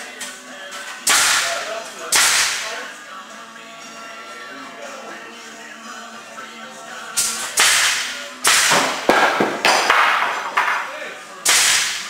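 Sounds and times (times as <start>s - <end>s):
loud sharp cracking hits: 1.1s - 2.7s, 7.2s - 10.5s, 11.5s - 12.0s.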